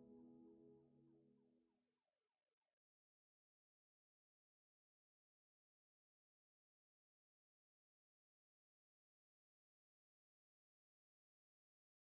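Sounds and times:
soft ambient music: 0:00.0 - 0:01.5.

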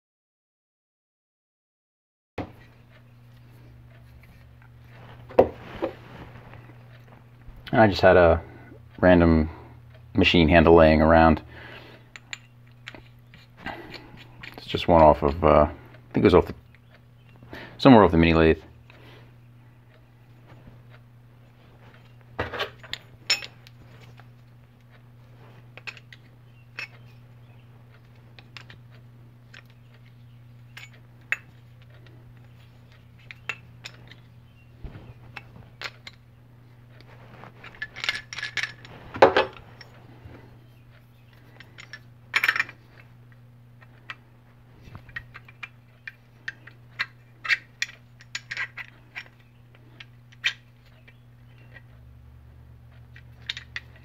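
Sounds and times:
faint steady hum: 0:02.4 - 0:54.0
small metal parts clinking: 0:21.9 - 0:24.3, 0:25.8 - 0:27.2, 0:29.5 - 0:36.2, 0:36.9 - 0:40.0, 0:41.2 - 0:43.1, 0:44.9 - 0:51.9, 0:52.9 - 0:54.0
metal parts clattering: 0:22.4 - 0:24.2, 0:37.6 - 0:39.9, 0:41.4 - 0:43.0, 0:45.0 - 0:49.4, 0:53.2 - 0:54.0.

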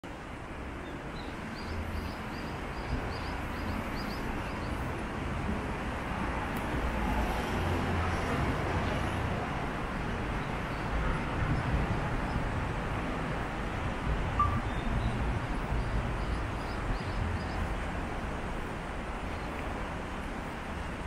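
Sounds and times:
road traffic rumble: 0:00.0 - 0:21.0
short high chirps: 0:14.4 - 0:14.9.

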